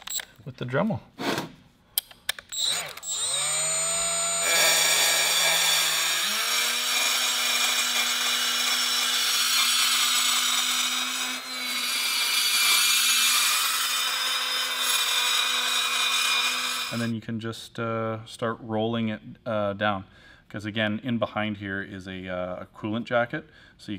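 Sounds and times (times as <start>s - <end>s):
carbide burr grinding metal: 2.6s - 17.1s
die grinder motor: 2.6s - 17.1s.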